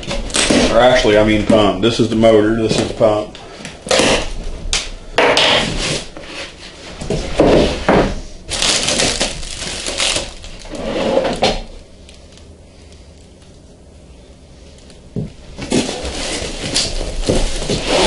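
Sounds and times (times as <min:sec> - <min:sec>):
plastic wrap rustling: 0:08.4 - 0:12.5, 0:14.7 - 0:18.0.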